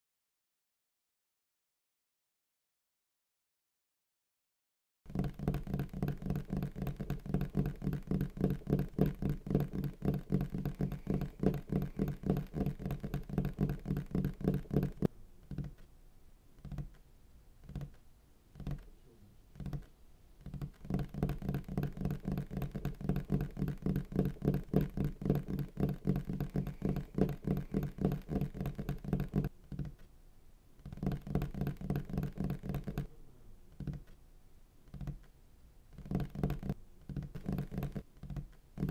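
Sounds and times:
fast clatter of taps: 5.1s - 15.7s, 19.6s - 30.0s, 30.8s - 33.1s, 36.0s - 38.9s.

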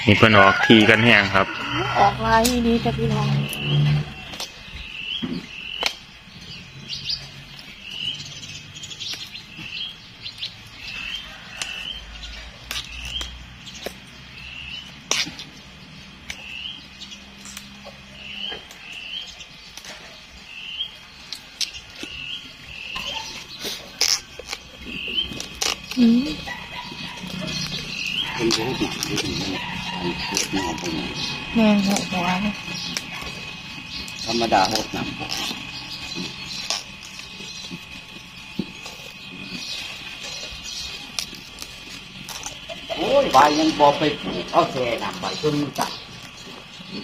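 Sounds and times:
bird chirping: 0.0s - 47.0s
bamboo shoots snapping: 12.6s - 14.0s, 23.8s - 26.0s.

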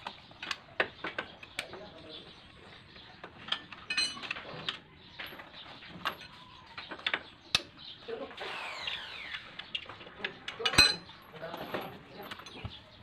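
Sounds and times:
metal tools clicking and knocking: 0.0s - 2.0s, 3.2s - 7.8s, 9.6s - 13.0s
ringing metal clink: 3.9s - 4.3s, 10.6s - 11.1s.

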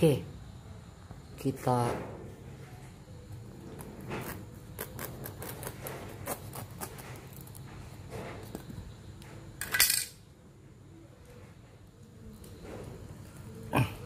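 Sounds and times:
husk cracking and clicking: 3.6s - 7.7s
knife rasping: 3.8s - 7.6s.

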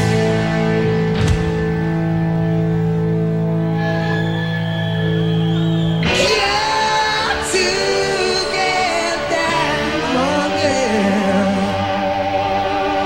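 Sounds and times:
rock band playing: 0.0s - 13.0s
man singing: 6.1s - 12.3s.

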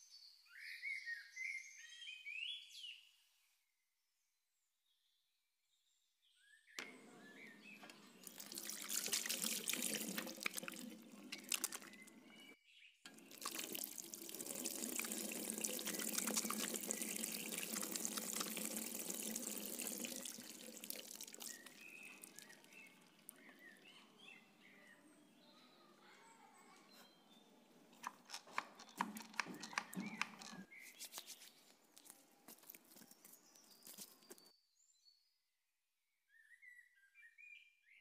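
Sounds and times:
tap water running over hands: 6.8s - 12.5s, 13.1s - 23.9s, 28.0s - 30.7s
faint bird chirps: 36.3s - 38.0s.

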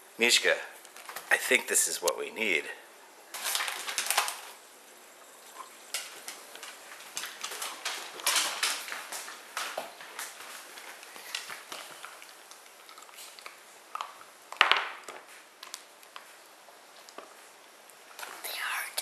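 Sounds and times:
plastic package crinkling: 3.3s - 4.6s, 5.9s - 16.2s
dog claws clicking on wooden floor: 3.4s - 4.5s, 5.9s - 16.3s.

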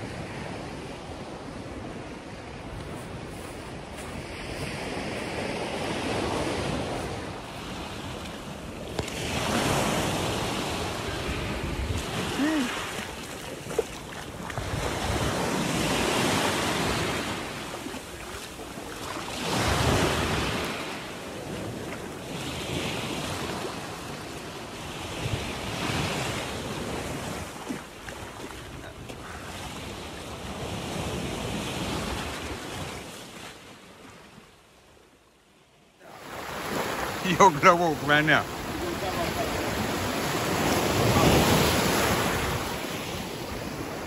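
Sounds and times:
waves washing over rocks: 3.1s - 33.3s, 36.1s - 44.0s.

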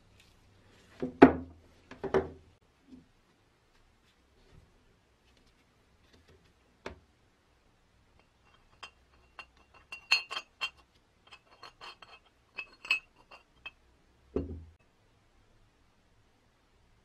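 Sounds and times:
dull metal knock: 14.4s - 14.8s.

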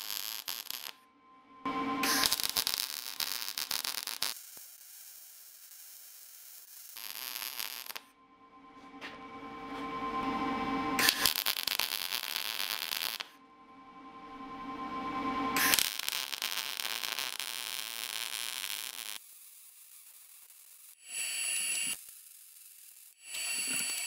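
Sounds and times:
welder arc crackling: 0.0s - 1.0s, 2.0s - 8.1s.

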